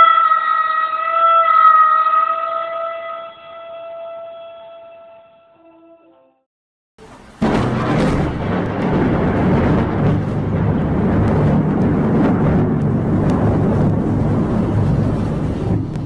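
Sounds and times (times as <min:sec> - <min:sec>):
vehicle engine rumbling: 0:07.0 - 0:16.0.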